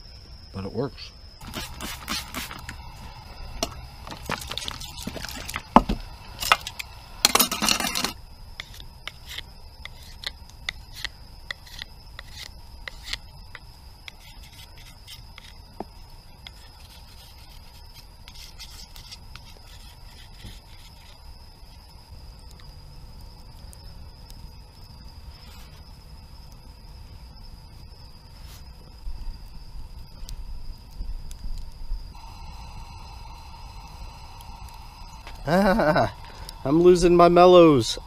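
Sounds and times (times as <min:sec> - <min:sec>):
knife scraping wood: 0:01.4 - 0:02.8, 0:08.6 - 0:13.2, 0:14.1 - 0:15.6, 0:16.4 - 0:21.2.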